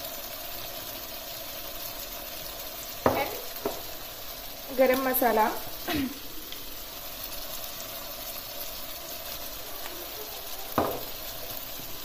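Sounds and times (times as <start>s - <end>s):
chicken sizzling in a saucepan: 0.0s - 12.0s
sharp tap: 10.8s - 11.1s.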